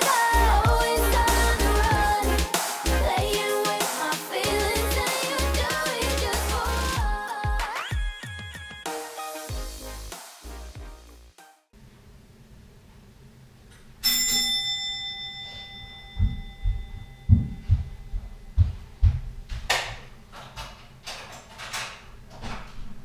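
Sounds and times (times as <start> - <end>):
bell-like ding: 14.0 - 18.5
heavy footsteps on floor: 16.2 - 19.7.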